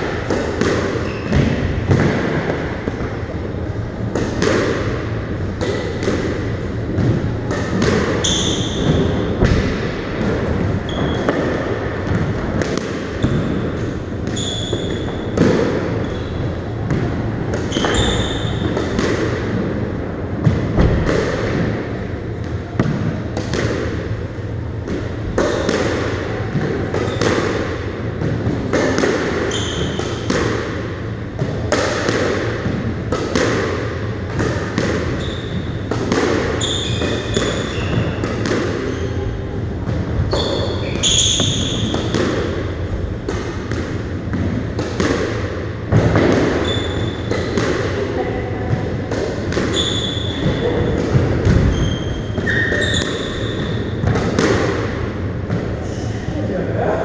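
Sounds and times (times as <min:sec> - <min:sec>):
squash ball hitting racket and walls: 0:00.0 - 0:56.9
shoes squeaking on wooden floor: 0:14.4 - 0:15.2, 0:17.7 - 0:18.6, 0:49.7 - 0:50.4, 0:51.7 - 0:53.7.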